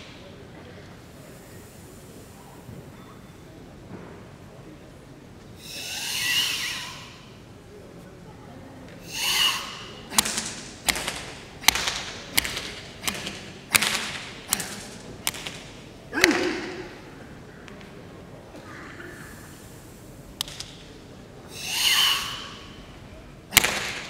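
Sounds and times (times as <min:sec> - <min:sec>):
forceful hissing breaths: 0:00.8 - 0:03.0, 0:05.5 - 0:07.6, 0:09.0 - 0:11.6, 0:12.2 - 0:17.4, 0:19.1 - 0:24.0
open hands slapping skin: 0:10.1 - 0:16.6.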